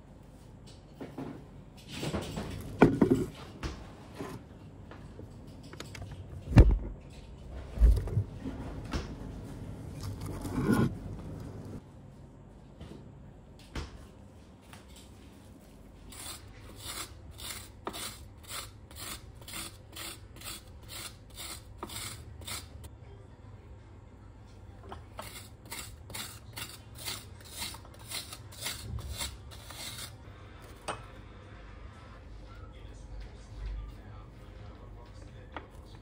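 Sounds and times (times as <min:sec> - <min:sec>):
spoon scraping ice cream in tin: 0:09.9 - 0:11.8, 0:25.0 - 0:30.2.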